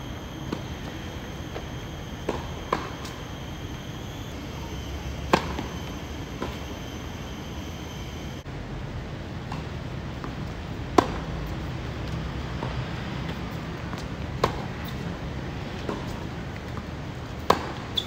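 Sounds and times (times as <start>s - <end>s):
outdoor background hiss: 0.0s - 18.0s
tennis ball struck by rackets: 0.4s - 3.2s, 5.3s - 6.6s, 17.4s - 17.8s.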